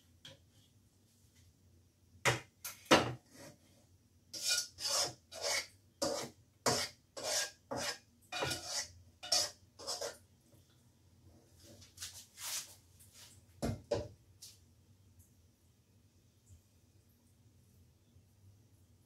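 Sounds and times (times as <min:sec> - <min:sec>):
spatula scraping a wok: 0:04.3 - 0:10.2.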